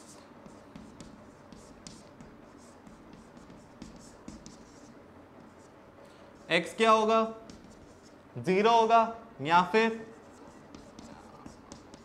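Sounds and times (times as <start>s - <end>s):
chalk scratching on chalkboard: 0.0s - 5.8s, 7.4s - 8.2s, 10.0s - 12.0s.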